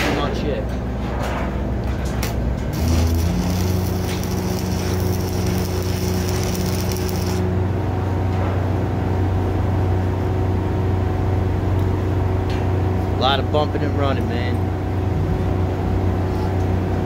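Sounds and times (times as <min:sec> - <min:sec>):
steady low hum: 0:00.0 - 0:17.0
arc welding crackling and sizzling: 0:02.7 - 0:07.5.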